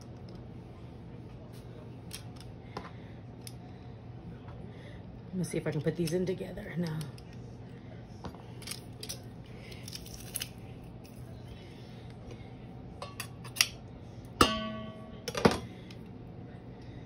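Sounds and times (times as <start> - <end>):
press knocking on metal bowl: 14.4 - 15.6.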